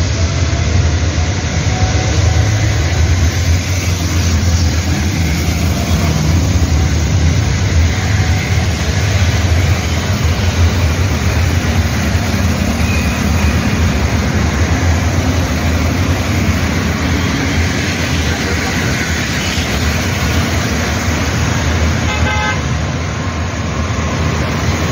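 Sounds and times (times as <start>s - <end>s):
road traffic passing: 0.0s - 24.9s
vehicle horn toot: 22.1s - 22.6s.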